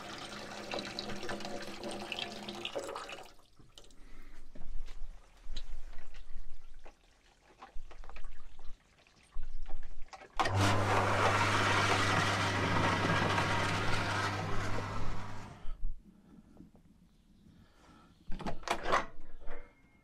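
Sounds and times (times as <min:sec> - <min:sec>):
water pump motor hum: 0:10.4 - 0:15.8.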